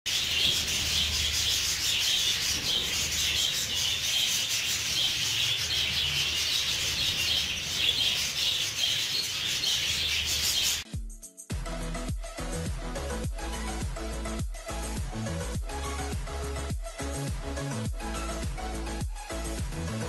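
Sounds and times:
birds pecking seeds: 0.1s - 10.8s
budgerigars chattering: 0.1s - 10.8s.

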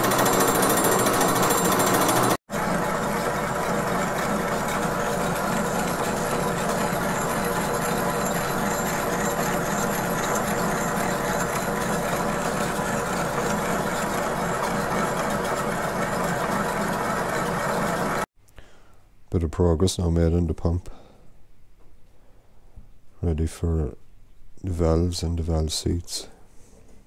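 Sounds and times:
milling machine whirring: 0.0s - 18.3s.

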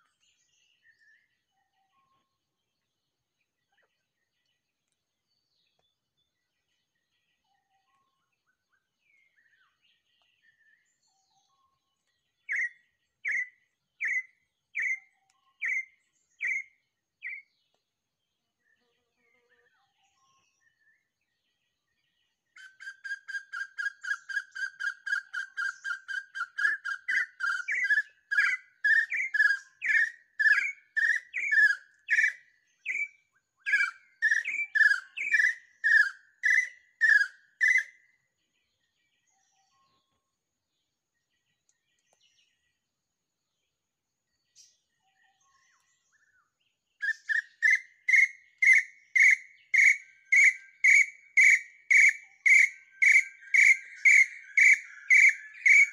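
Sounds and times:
bird whistling: 12.5s - 15.0s, 15.6s - 17.4s, 22.6s - 38.0s, 47.0s - 55.9s
louder slow bird calls: 22.6s - 38.0s, 45.4s - 55.9s.

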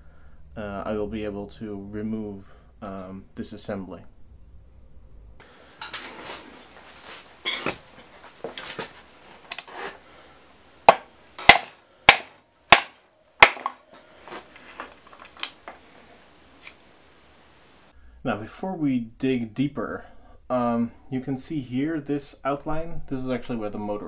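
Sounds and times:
handling noise: 5.8s - 10.1s, 10.8s - 17.0s
sharp knocks: 10.9s - 13.8s.

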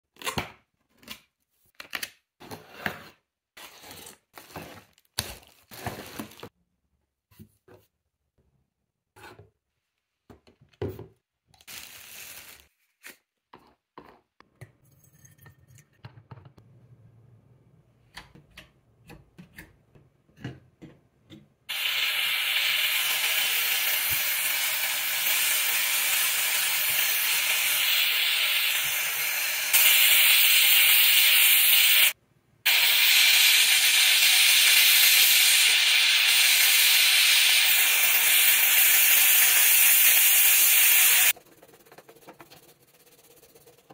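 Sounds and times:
steam cleaner hissing: 21.7s - 41.4s.

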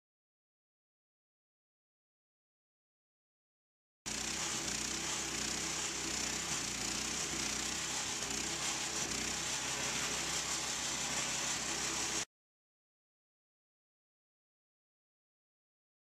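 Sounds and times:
stump grinder engine humming: 4.1s - 12.2s
cutter wheel grinding wood: 4.1s - 12.3s.

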